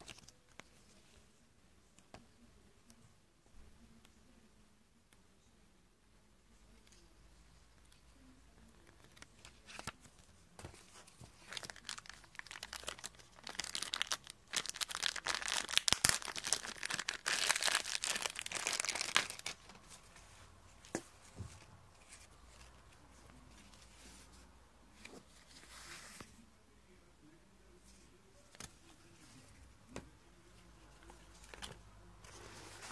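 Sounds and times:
paper crinkling and rustling: 0:08.9 - 0:20.0, 0:31.0 - 0:32.9.

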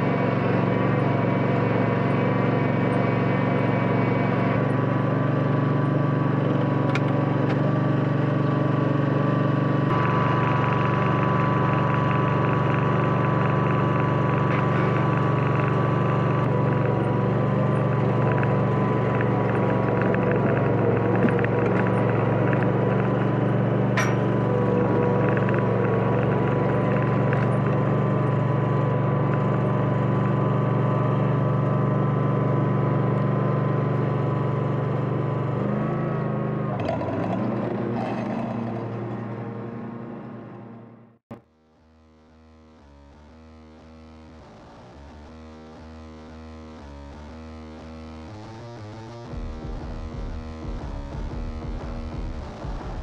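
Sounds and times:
ride-on lawn mower running: 0:00.0 - 0:41.4.

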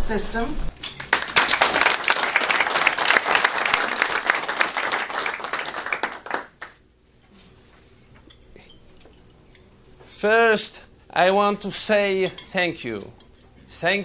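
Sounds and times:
audience applauding: 0:01.0 - 0:06.8.

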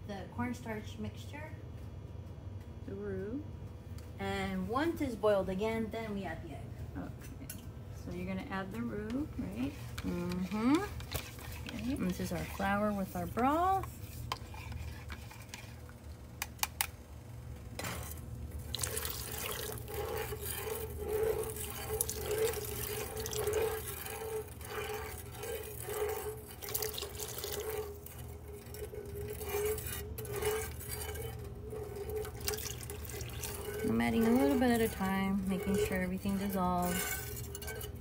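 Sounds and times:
liquid pouring into a pot: 0:17.8 - 0:38.0.

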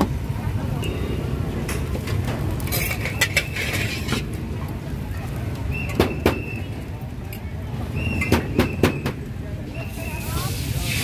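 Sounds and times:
metal ladle scraping a wok: 0:02.6 - 0:04.4.

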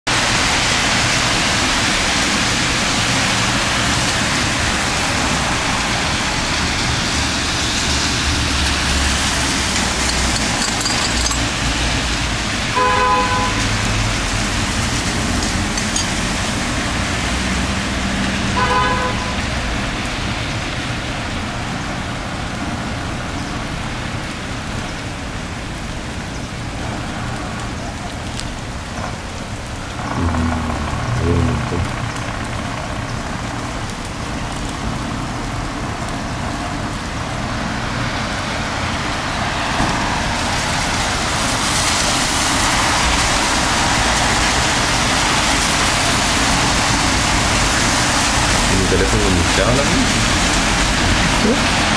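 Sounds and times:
traffic on wet street: 0:00.1 - 0:51.9
car horn toots: 0:12.8 - 0:13.6, 0:18.6 - 0:19.4.

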